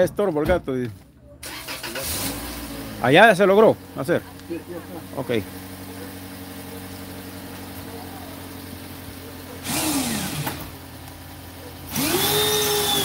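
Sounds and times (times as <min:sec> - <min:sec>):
low engine hum: 0:02.1 - 0:13.0
power drill whine: 0:09.6 - 0:10.8, 0:11.9 - 0:13.0.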